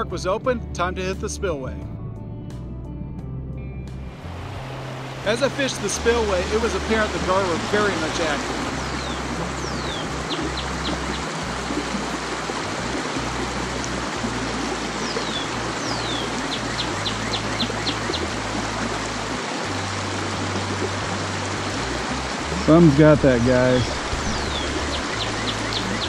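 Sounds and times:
water rushing over rocks: 4.2s - 26.0s
bird singing whistle and trills: 6.4s - 11.3s, 15.0s - 18.4s, 23.7s - 26.0s.

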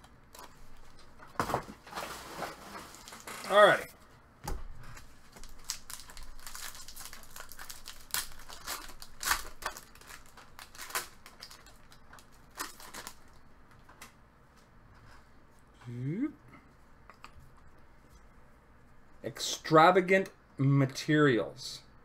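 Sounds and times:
card pack wrapper crinkling and tearing: 5.0s - 13.4s.

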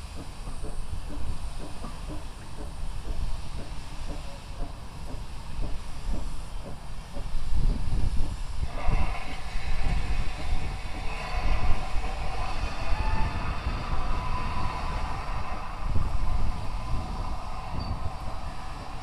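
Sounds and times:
distant train rumble: 0.0s - 19.0s
steady higher rushing sound: 8.6s - 19.0s.

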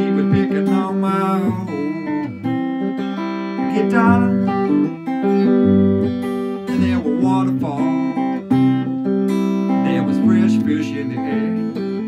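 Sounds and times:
acoustic guitar strummed: 0.0s - 12.0s.

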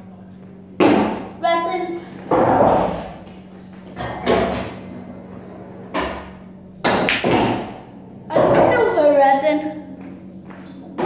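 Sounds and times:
pool cue striking ball: 2.3s - 3.2s, 5.8s - 8.8s
pool balls knocking together: 5.9s - 8.8s.

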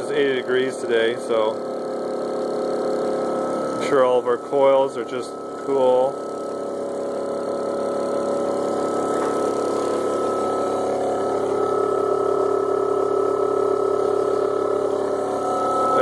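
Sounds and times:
motor machine hum: 0.0s - 16.0s.

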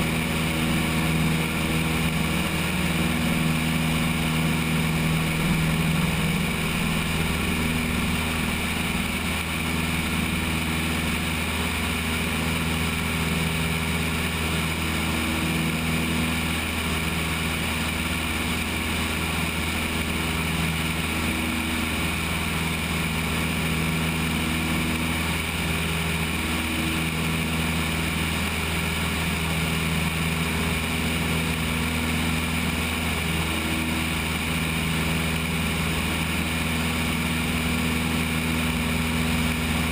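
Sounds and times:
airflow noise: 0.0s - 19.0s
propeller engine droning: 0.0s - 39.9s.

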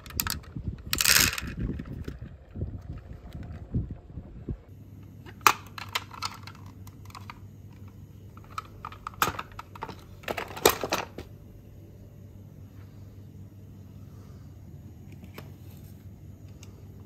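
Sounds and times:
plastic toy clicks and clatter: 0.0s - 3.6s, 5.4s - 7.4s.

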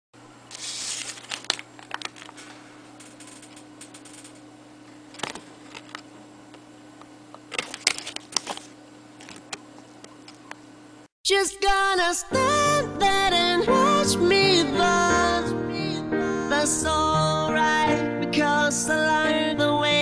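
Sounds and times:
faint electrical hum: 0.2s - 11.1s
paper crinkling: 0.5s - 4.2s, 7.5s - 9.6s.

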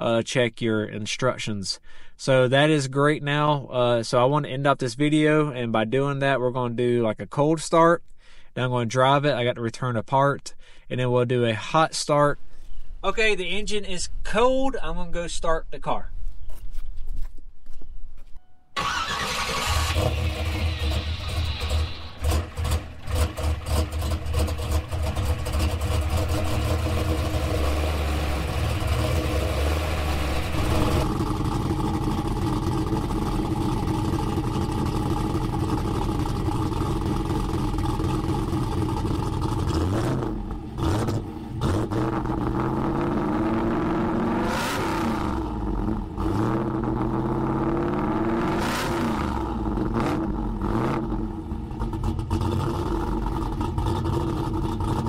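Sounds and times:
car engine idling and revving: 18.8s - 55.0s.

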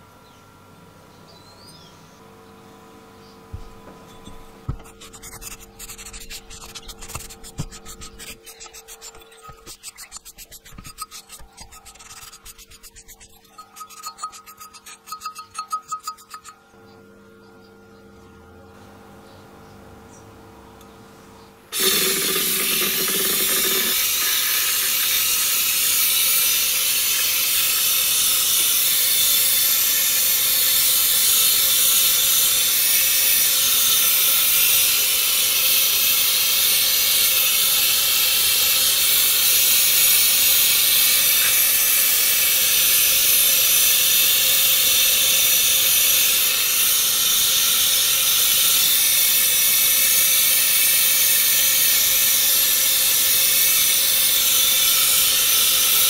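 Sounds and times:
compressed air spray hiss: 21.8s - 56.0s.

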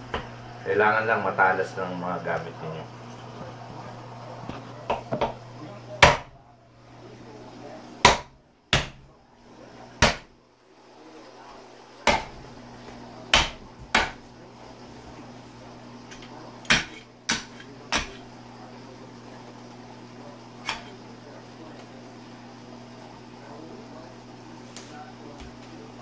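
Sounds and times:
meat cleaver chopping: 6.0s - 6.4s, 8.0s - 9.1s, 10.0s - 10.3s, 12.0s - 14.3s, 16.1s - 18.3s, 20.6s - 21.0s.

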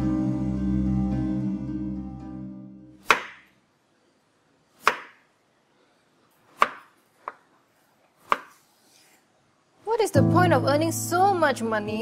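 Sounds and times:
background music: 0.0s - 3.2s, 10.2s - 12.0s
knife chopping on wooden board: 3.0s - 3.5s, 4.8s - 5.2s, 6.5s - 7.5s, 8.2s - 8.6s.

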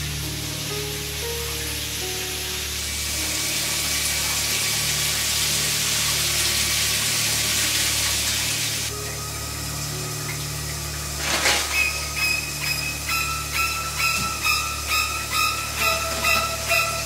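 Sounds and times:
shower spray hissing: 0.0s - 17.0s
sharp high music notes: 8.9s - 17.0s.

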